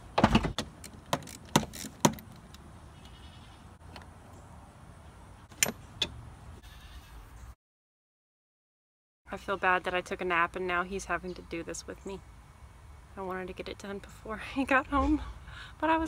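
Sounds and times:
seatbelt clicks and knocks: 0.2s - 2.5s.

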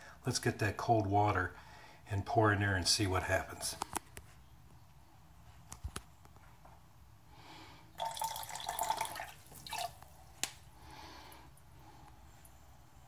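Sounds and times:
water splashing into glass pot: 8.0s - 10.2s.

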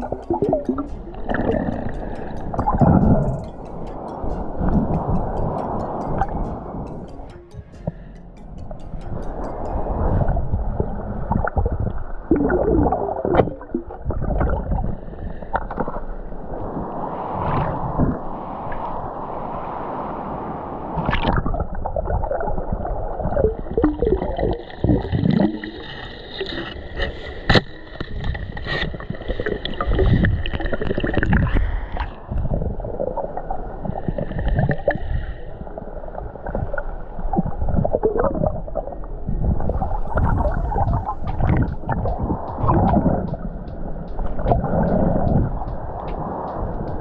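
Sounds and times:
water gurgling and sloshing: 0.0s - 19.7s, 21.0s - 47.0s
knocks and bumps: 40.0s - 47.0s.

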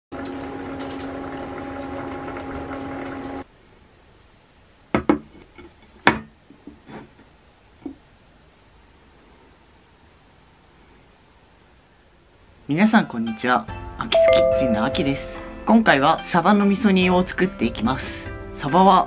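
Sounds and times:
broth bubbling in a pot: 0.2s - 3.5s.

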